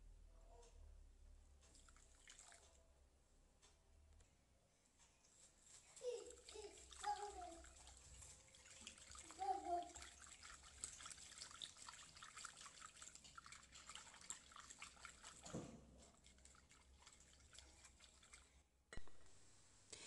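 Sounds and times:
whisk stirring liquid in bowl: 6.0 - 18.6.

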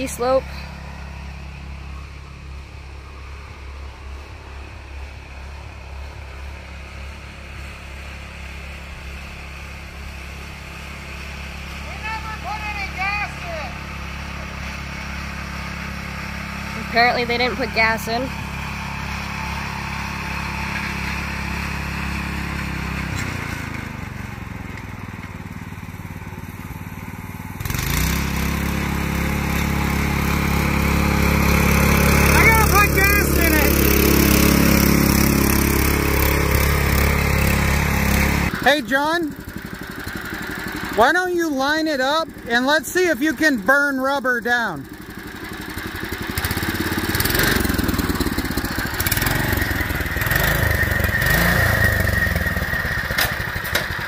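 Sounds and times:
go-kart engine droning: 0.0 - 54.0.

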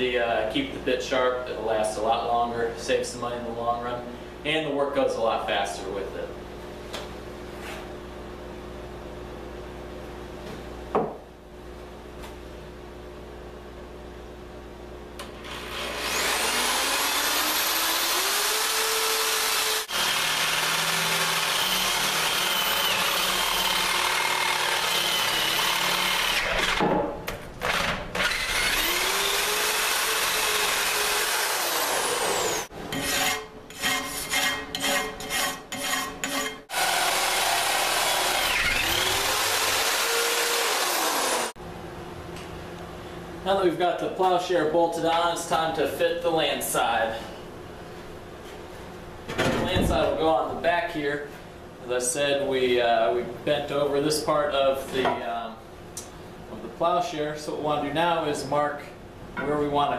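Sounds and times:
electric drill grinding through steel: 15.4 - 26.8, 27.6 - 32.7, 36.7 - 41.6.

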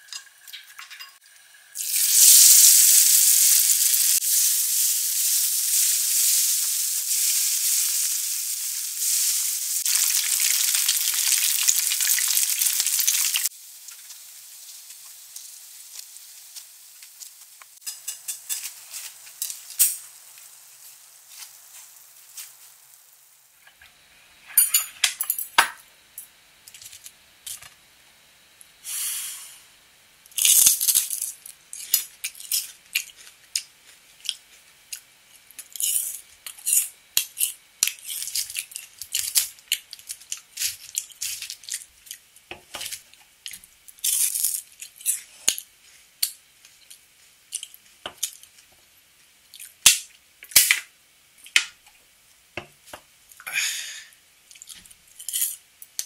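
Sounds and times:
fried batter crunching: 5.5 - 19.8.

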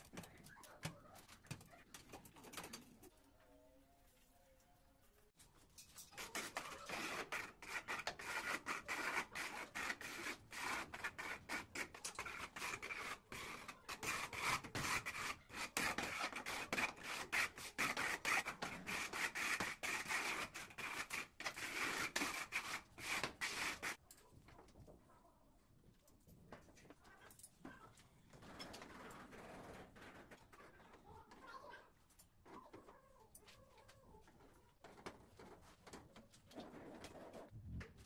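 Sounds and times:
trowel scraping adhesive: 6.0 - 24.0.

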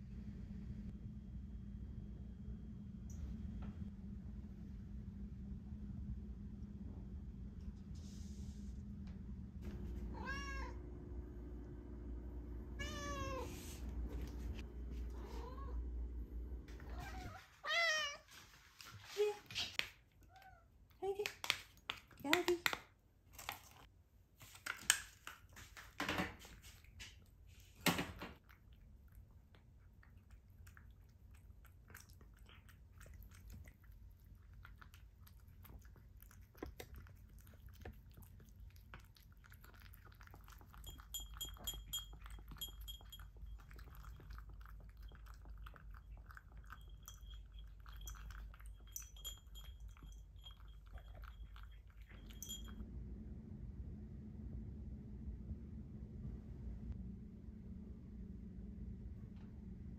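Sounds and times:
cat chewing and lapping: 18.4 - 27.8, 28.4 - 52.8
spoon clinking on ceramic bowl: 40.7 - 44.2, 46.3 - 52.8.

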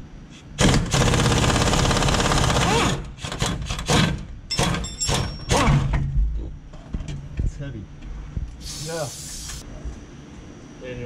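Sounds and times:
pneumatic impact wrench hammering: 0.6 - 6.1
sharp metal clanks: 4.5 - 6.1.

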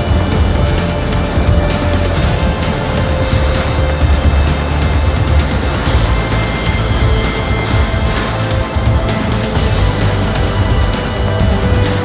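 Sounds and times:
loud music with heavy bass: 0.0 - 12.0.

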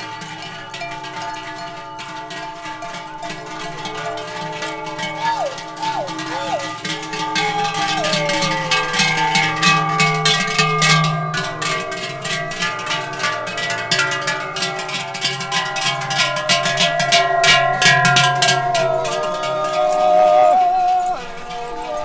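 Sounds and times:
cowbells clanging: 0.0 - 22.0
herdsmen yodeling: 1.8 - 11.0, 14.6 - 22.0.

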